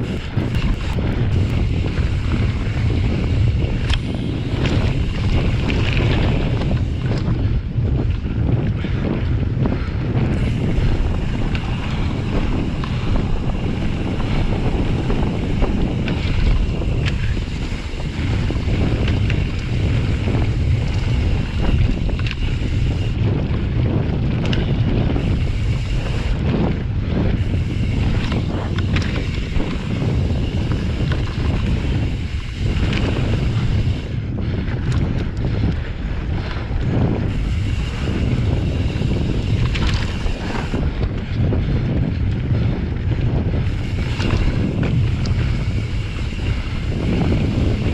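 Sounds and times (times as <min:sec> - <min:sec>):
bike rattling and knocking: 0:00.0 - 0:47.9
wind buffeting microphone: 0:00.0 - 0:47.9.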